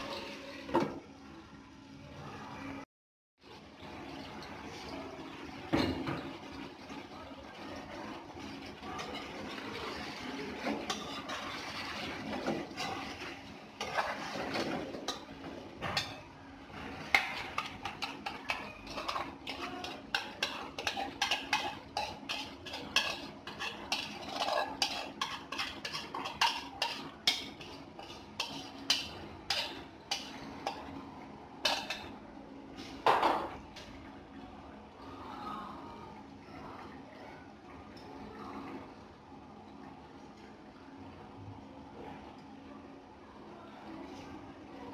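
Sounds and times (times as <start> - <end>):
spatula scraping frying pan: 9.0 - 15.3, 16.8 - 31.0.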